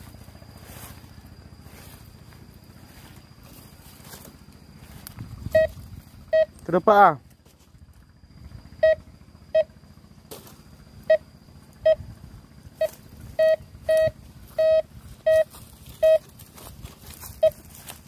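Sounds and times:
metal detector beeping: 0.0s - 7.0s, 8.8s - 9.8s, 11.0s - 12.1s, 12.7s - 18.0s.

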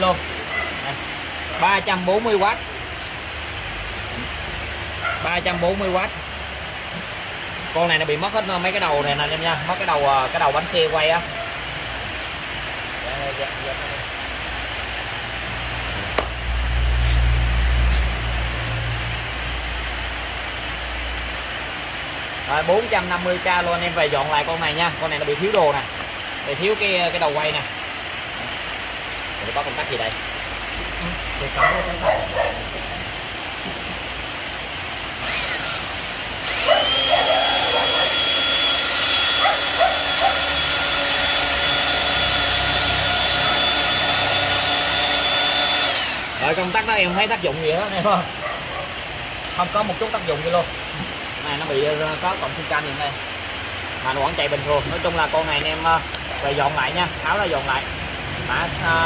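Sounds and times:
power tool motor humming: 35.1s - 47.1s.

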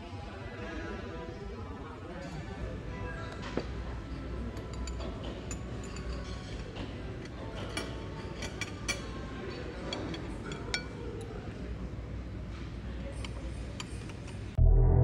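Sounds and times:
cutlery clinking on ceramic plates: 4.2s - 11.0s
steady low hum: 14.5s - 15.0s.

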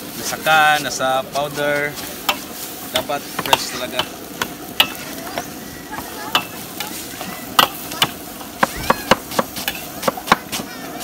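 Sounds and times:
pan sizzling: 0.0s - 11.0s
metal ladle scraping wok: 9.2s - 10.6s.

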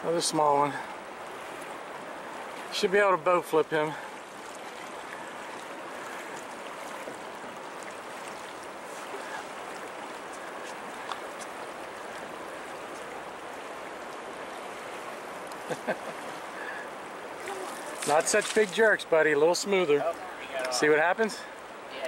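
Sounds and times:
water splashing against boat hull: 3.9s - 16.5s, 17.3s - 19.0s.

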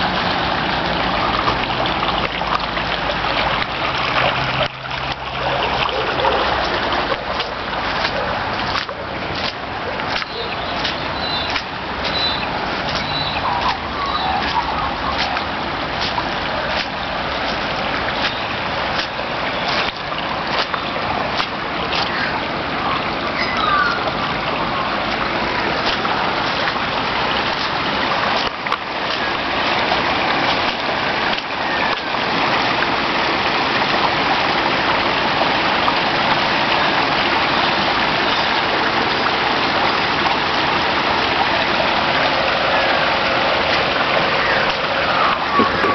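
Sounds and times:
water gushing and splashing: 0.0s - 45.9s
bird chirps: 10.2s - 15.3s.

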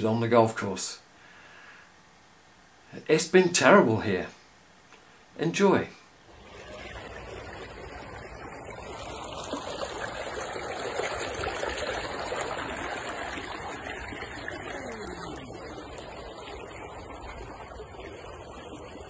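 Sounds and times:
floodwater rushing and churning: 6.3s - 19.0s.

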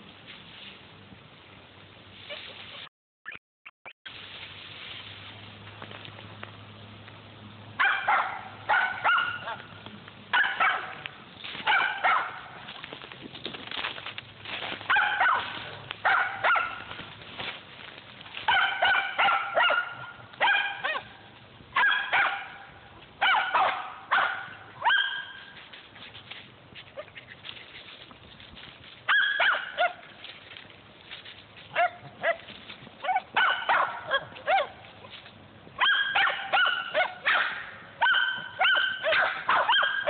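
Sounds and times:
dogs barking: 7.8s - 12.7s, 14.9s - 17.0s, 18.5s - 21.2s, 21.8s - 25.5s, 29.1s - 30.1s, 31.7s - 34.8s, 35.8s - 40.0s.

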